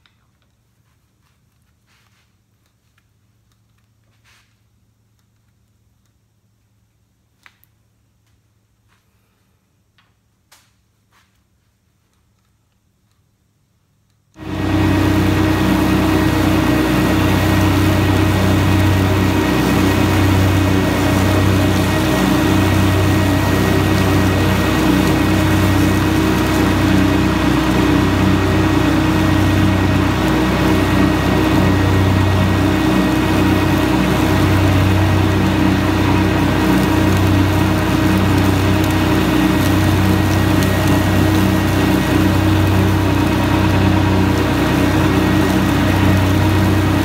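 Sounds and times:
mower cutting grass: 14.4 - 47.0
tractor diesel engine running: 14.4 - 47.0.

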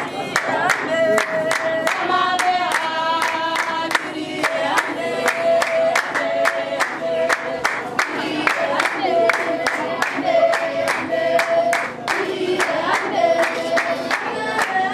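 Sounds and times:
women singing together: 0.0 - 14.9
hand claps: 0.3 - 14.9.

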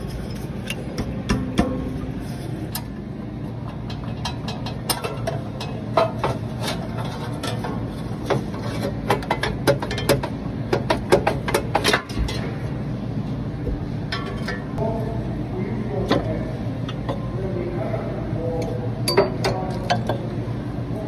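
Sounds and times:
steady low hum: 0.0 - 21.0
hand tools clicking and knocking: 3.7 - 12.4.

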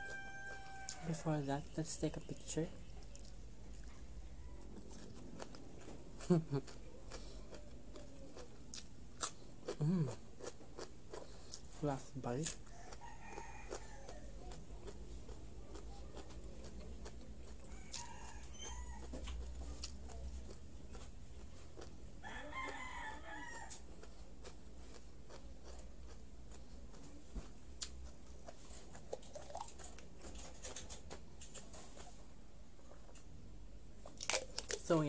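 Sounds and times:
rooster crowing: 0.0 - 1.2, 4.2 - 5.0, 12.7 - 14.4, 17.6 - 19.3, 22.2 - 23.8.

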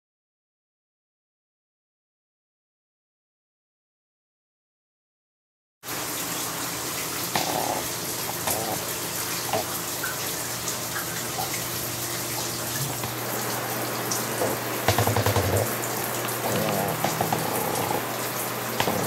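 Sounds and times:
shower water hissing: 5.8 - 19.0.

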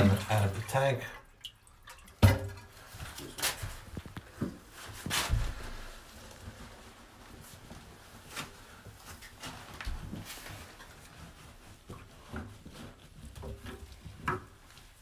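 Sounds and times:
tank water emptying into bowl: 0.0 - 4.2.

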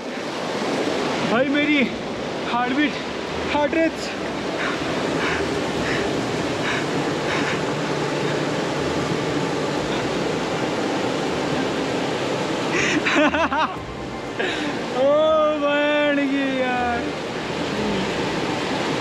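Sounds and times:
river rushing over boulders: 0.0 - 19.0
person laughing: 12.7 - 13.8.

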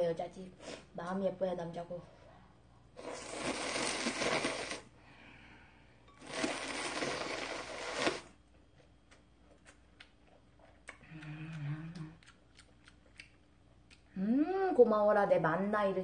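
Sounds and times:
person slurping noodles: 3.0 - 4.9, 6.2 - 8.3
person chewing: 6.2 - 14.1.

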